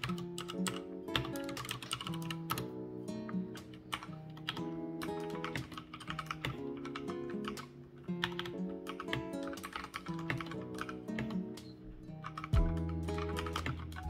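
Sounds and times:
background music: 0:00.0 - 0:14.0
mechanical keyboard key clacks: 0:05.3 - 0:11.4, 0:12.2 - 0:14.0.

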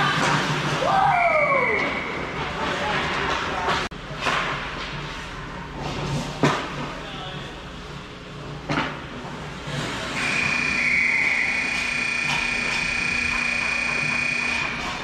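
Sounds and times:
scoreboard horn tone: 0:10.2 - 0:14.9.

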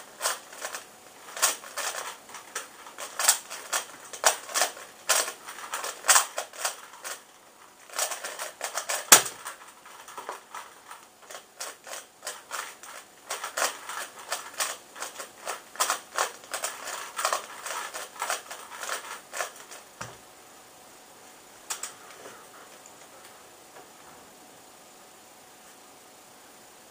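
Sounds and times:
puzzle cube layers clicking: 0:07.9 - 0:19.8.

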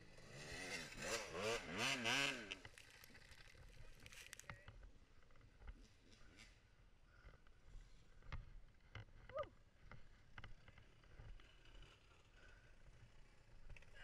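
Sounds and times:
dirt bike engine revving: 0:00.0 - 0:02.6.

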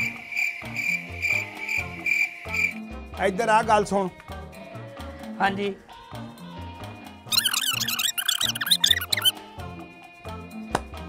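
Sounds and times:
high squeaky chattering effect: 0:07.3 - 0:09.3.

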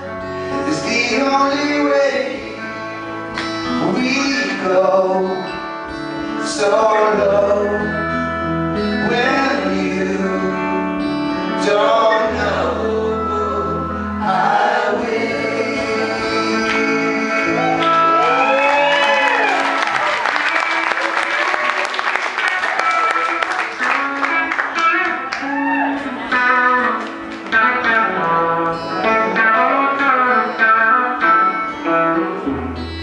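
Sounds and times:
acoustic guitar: 0:00.0 - 0:33.0
electric guitar: 0:00.0 - 0:33.0
keyboard: 0:00.0 - 0:33.0
men singing in harmony: 0:06.5 - 0:07.9, 0:11.5 - 0:18.3.

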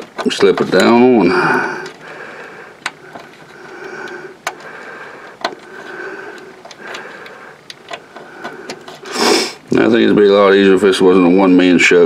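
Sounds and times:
heavy breathing: 0:01.1 - 0:09.7.

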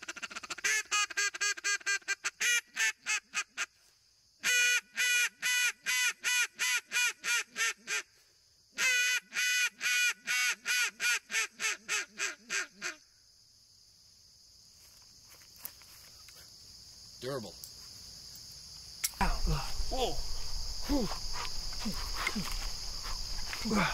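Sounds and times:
duck call quacks: 0:00.0 - 0:03.8, 0:04.4 - 0:08.1, 0:08.8 - 0:13.0
high insect hum: 0:00.0 - 0:23.9.

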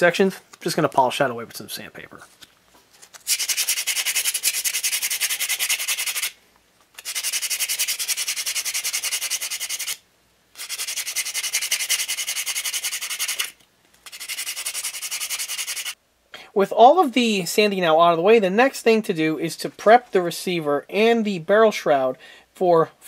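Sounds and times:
sandpaper rasping on metal: 0:03.3 - 0:06.4, 0:07.0 - 0:10.0, 0:10.6 - 0:16.0.

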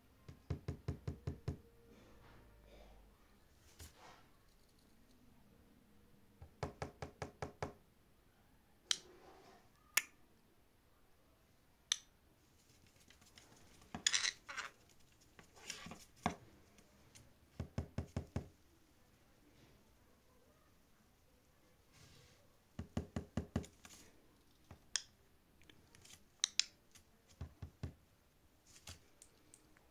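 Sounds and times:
rough scratchy noises: 0:12.5 - 0:16.3
fingertips tapping on wood: 0:17.5 - 0:18.5, 0:22.8 - 0:23.8.

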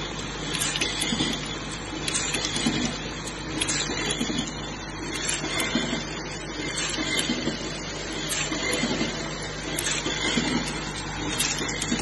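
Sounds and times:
machine humming: 0:00.0 - 0:12.0
sharp mechanical clicks and clacks: 0:00.0 - 0:12.0.

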